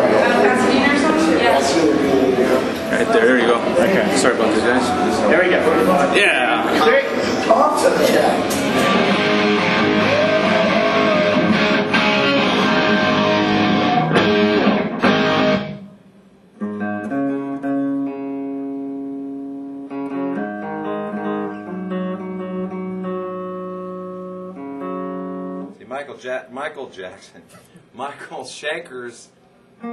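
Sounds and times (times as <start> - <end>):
distorted electric guitar riff: 8.3 - 25.8
clean guitar chords ringing: 8.4 - 16.0, 16.6 - 25.8.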